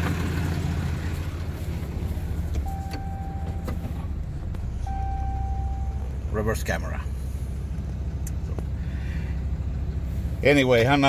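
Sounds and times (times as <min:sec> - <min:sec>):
diesel engine idling: 0:00.0 - 0:11.0
electronic chime tone: 0:02.7 - 0:03.7, 0:04.7 - 0:06.3.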